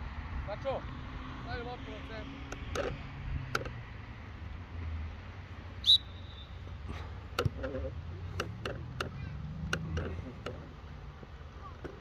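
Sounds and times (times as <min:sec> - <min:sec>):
referee's whistle blast: 0:05.8 - 0:06.6.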